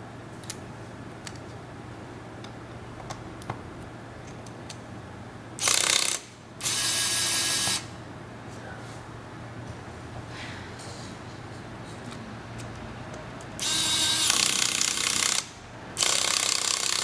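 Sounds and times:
electric screwdriver whirring: 5.6s - 7.9s, 13.6s - 17.0s.

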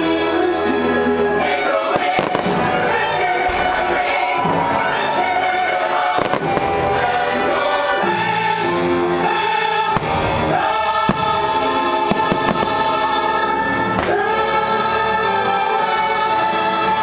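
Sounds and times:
choir singing over music: 0.0s - 17.0s
fireworks bursting: 1.8s - 7.3s, 9.8s - 14.3s.

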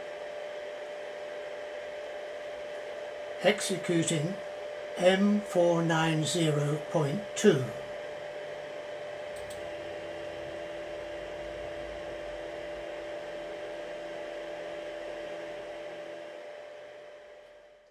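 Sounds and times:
lower machine whine: 0.0s - 17.9s
machine electrical hum and whine: 0.0s - 17.9s
small click: 9.3s - 9.6s.

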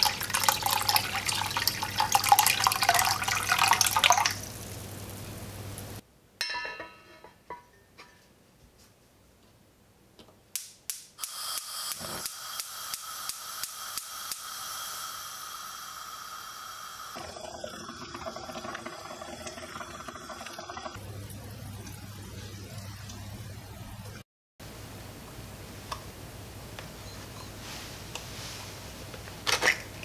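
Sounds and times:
water simmering in pot: 0.0s - 6.0s, 12.7s - 23.3s
spark igniter clicking: 10.6s - 14.8s
gas flame hissing: 11.2s - 17.3s
gas hissing: 11.2s - 17.7s.

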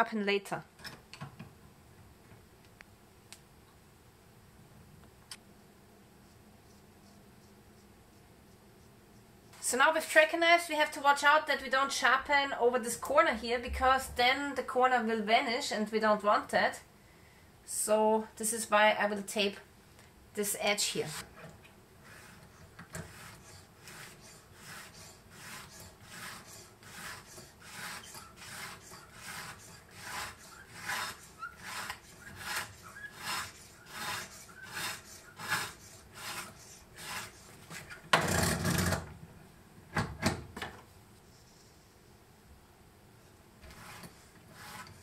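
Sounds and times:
sharpening stone rasping on knife: 23.3s - 37.4s.

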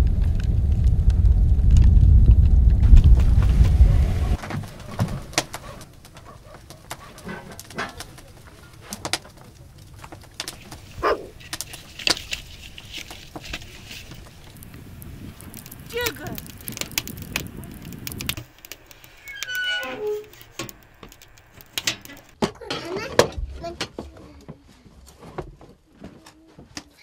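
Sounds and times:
loud low rumble: 0.0s - 4.4s, 14.0s - 19.2s
short rising squeak: 18.8s - 21.6s.

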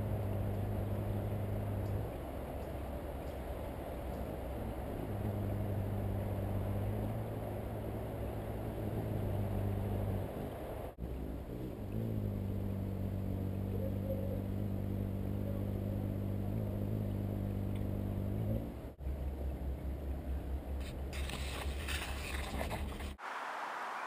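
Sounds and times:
hummingbird wings humming: 0.0s - 18.9s.

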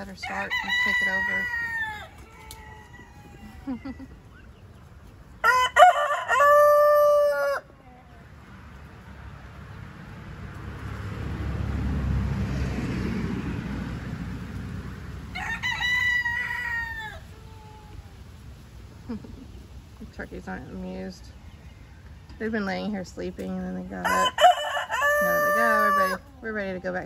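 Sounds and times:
roosters crowing: 0.0s - 8.5s, 14.3s - 18.5s, 23.9s - 27.0s.

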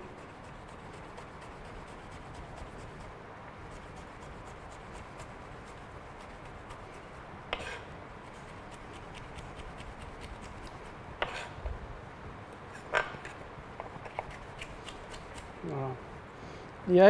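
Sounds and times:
knife knocking and scraping board: 7.5s - 7.9s, 11.2s - 11.7s, 12.7s - 14.4s.

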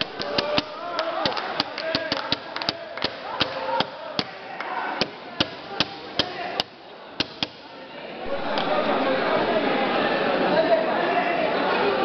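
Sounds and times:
sharp slaps: 0.0s - 4.4s, 5.0s - 7.7s
faint voices: 0.0s - 12.0s.

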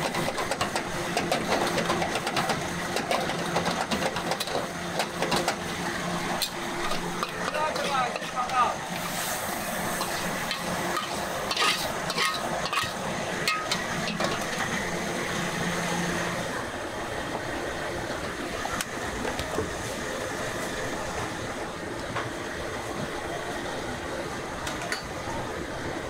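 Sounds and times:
steady hiss of frying: 0.0s - 26.0s
metal spatula scraping wok: 9.0s - 14.6s.

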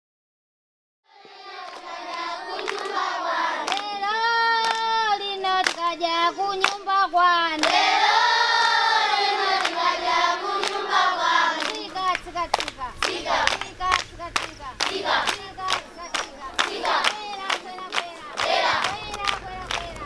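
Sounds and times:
children singing together: 1.1s - 20.0s
hand claps: 1.6s - 7.9s, 9.6s - 9.9s, 10.6s - 20.0s.

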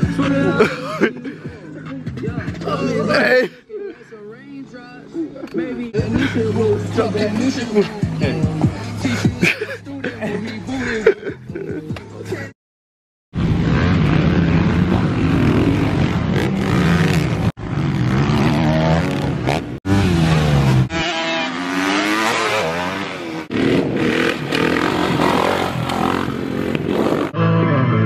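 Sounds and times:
dirt bike engines revving: 5.8s - 11.1s, 13.4s - 27.4s.

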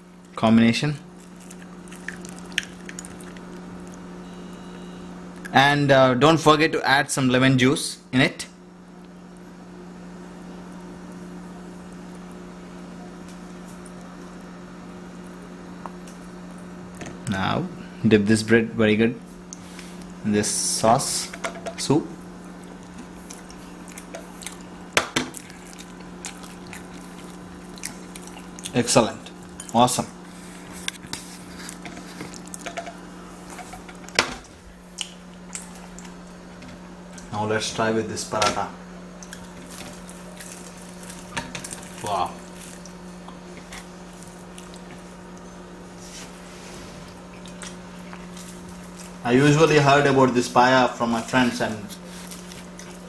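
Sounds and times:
low hum: 0.0s - 5.6s
steady low hum: 0.0s - 53.0s.

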